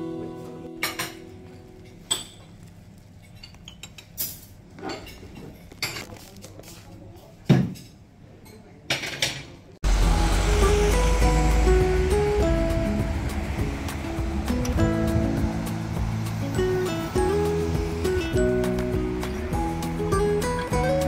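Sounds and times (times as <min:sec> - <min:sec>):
music: 0:00.0 - 0:01.9, 0:09.8 - 0:21.0.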